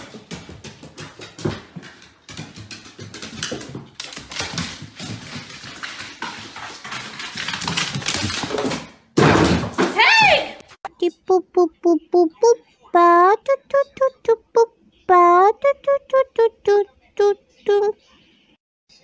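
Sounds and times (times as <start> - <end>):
dog claws clicking on stairs: 0.0 - 8.8.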